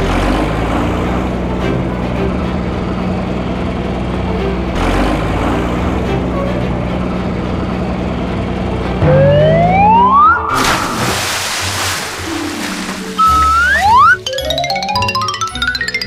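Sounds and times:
fire truck engine hum: 0.0 - 14.8
siren-like whine rising in pitch: 9.0 - 10.6, 13.2 - 14.2.

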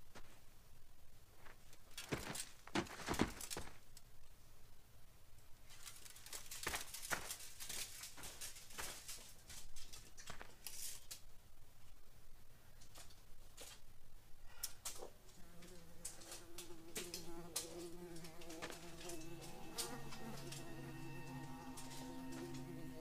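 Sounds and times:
faint rustling and scraping: 5.6 - 12.0, 14.6 - 23.0.

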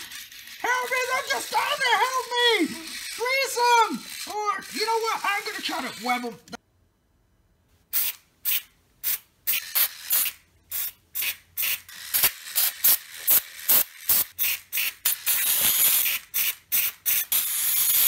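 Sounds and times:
aerosol spray hissing bursts: 7.9 - 17.2.

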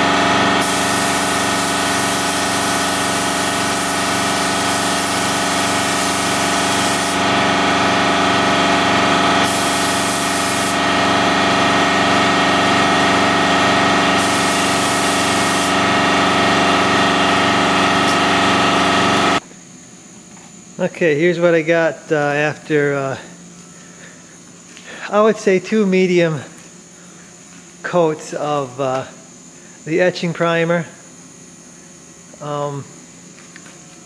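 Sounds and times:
steady machine drone: 0.0 - 19.5
paint spray gun hissing: 0.4 - 12.1, 12.8 - 16.9.

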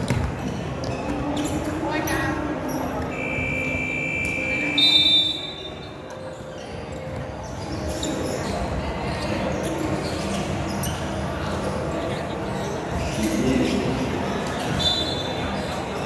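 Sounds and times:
basketballs bouncing: 0.0 - 1.8
referee's whistle: 3.1 - 5.9, 14.8 - 15.3.

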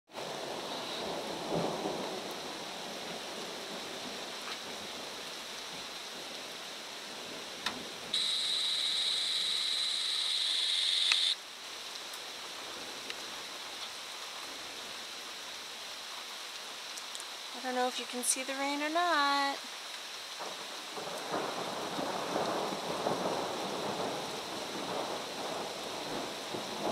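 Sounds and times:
steady rain: 0.1 - 26.9
thunder rumble: 0.2 - 5.0, 20.4 - 26.9
high-pitched buzzing tone: 8.2 - 11.4.

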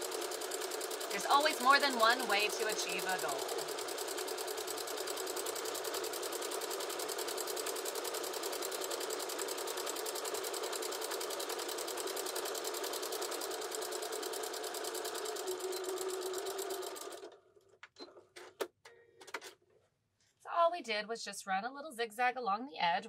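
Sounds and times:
sewing machine running: 0.0 - 17.4.

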